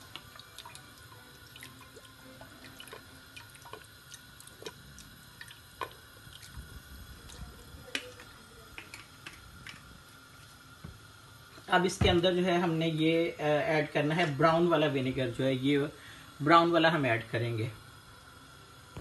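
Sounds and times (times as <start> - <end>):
faint steady hum: 0.0 - 19.0
liquid dripping and popping: 1.5 - 9.9.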